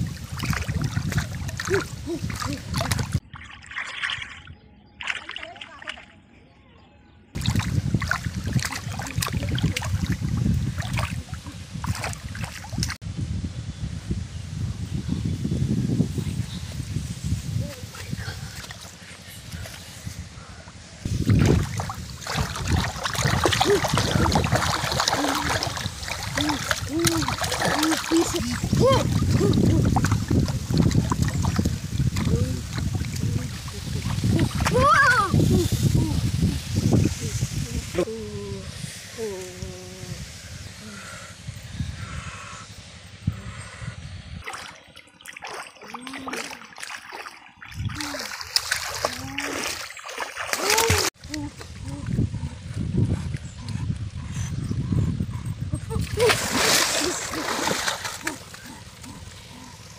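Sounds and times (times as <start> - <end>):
stream water rushing and splashing: 0.0 - 4.4, 7.4 - 13.0, 21.0 - 37.2, 44.4 - 51.2, 56.2 - 59.1.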